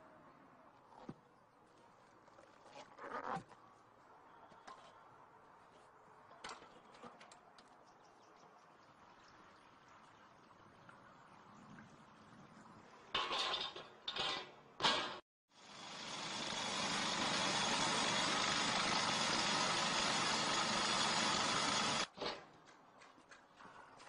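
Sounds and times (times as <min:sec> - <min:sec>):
road-works machine running: 0:15.6 - 0:22.1.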